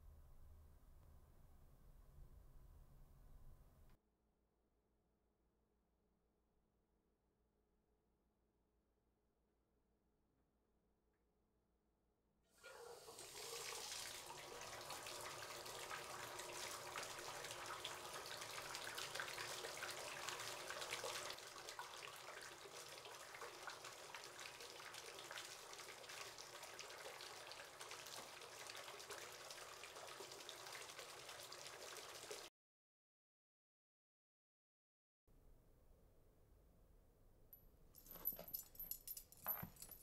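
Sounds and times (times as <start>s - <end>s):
tap water running into bathtub: 12.6s - 32.5s.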